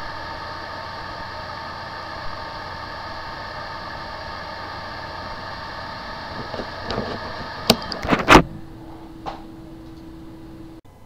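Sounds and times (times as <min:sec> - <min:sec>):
hard drive whirring: 0:00.0 - 0:11.0
steady low hum: 0:00.0 - 0:11.0
hard drive clicks: 0:06.3 - 0:08.6.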